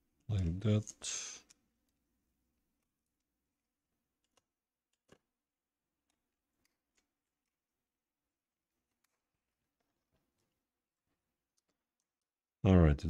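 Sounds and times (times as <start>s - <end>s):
faint clicks of laptop parts: 4.1s - 7.8s, 8.8s - 12.3s.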